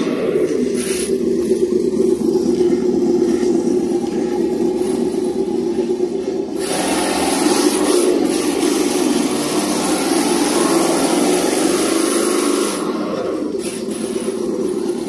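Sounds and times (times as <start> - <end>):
tyres hissing on concrete: 0.5 - 1.8, 4.7 - 15.0.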